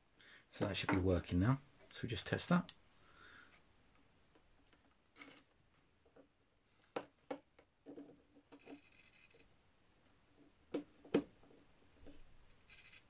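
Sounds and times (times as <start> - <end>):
multimeter beeping: 8.6 - 13.0.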